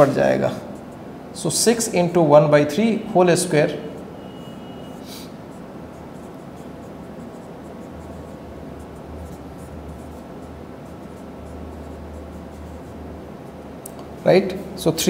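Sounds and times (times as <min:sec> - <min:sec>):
marker scratching on whiteboard: 0:00.0 - 0:01.1, 0:03.8 - 0:14.3.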